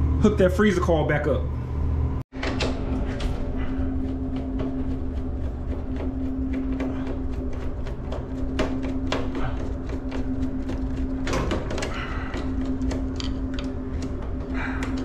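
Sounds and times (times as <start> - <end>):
low machine hum: 0.0 - 15.0
gloved hands handling wires: 3.9 - 15.0.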